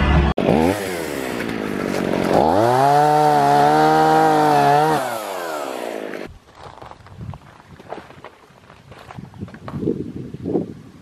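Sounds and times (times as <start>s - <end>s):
chainsaw revving: 0.1s - 6.3s.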